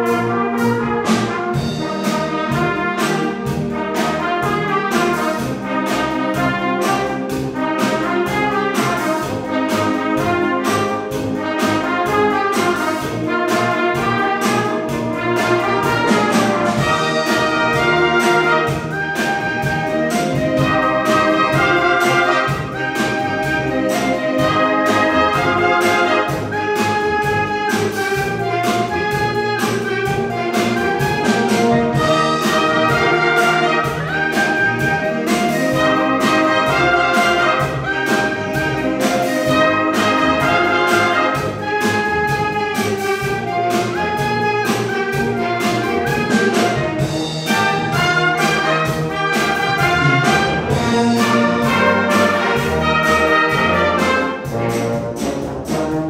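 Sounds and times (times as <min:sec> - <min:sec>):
brass band playing: 0:00.0 - 0:56.0
steady drum beat: 0:00.0 - 0:56.0.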